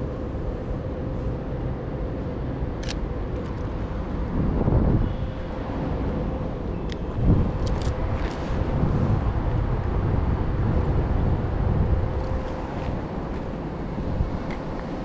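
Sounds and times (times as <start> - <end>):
traffic rumble: 0.0 - 15.0
wind buffeting microphone: 3.7 - 15.0.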